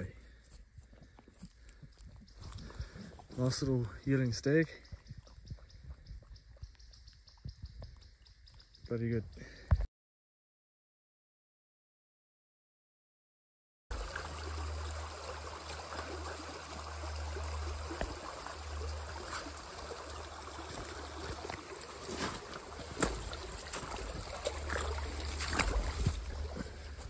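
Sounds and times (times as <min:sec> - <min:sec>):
shallow creek running: 0:00.0 - 0:09.7, 0:13.9 - 0:27.0
wind rumble on microphone: 0:01.8 - 0:03.4, 0:04.8 - 0:08.9
brushing vegetation: 0:21.0 - 0:27.0.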